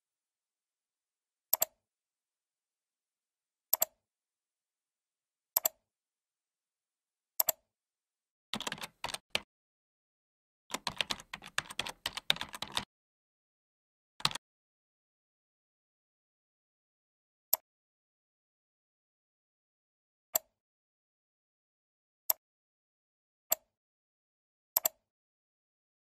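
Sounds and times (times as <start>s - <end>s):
computer mouse clicks: 1.6s - 1.8s, 7.4s - 7.6s, 8.6s - 9.4s, 10.7s - 12.8s, 14.2s - 14.4s, 24.8s - 25.0s
typing on computer keyboard: 8.6s - 9.4s, 10.7s - 12.9s, 14.2s - 14.4s.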